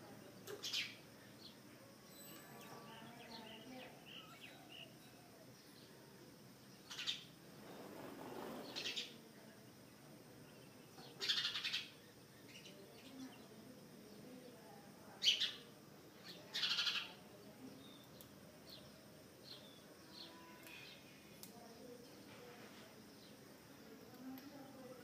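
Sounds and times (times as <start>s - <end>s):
sparrows chirping: 0.2s - 25.0s.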